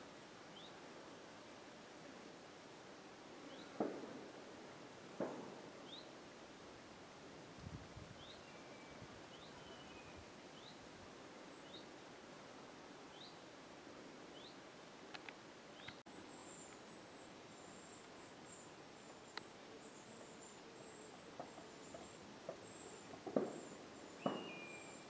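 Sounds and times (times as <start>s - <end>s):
bird chirping: 5.8s - 6.1s, 8.2s - 10.8s, 14.3s - 14.6s, 15.8s - 25.0s
soft clicks: 15.1s - 16.0s.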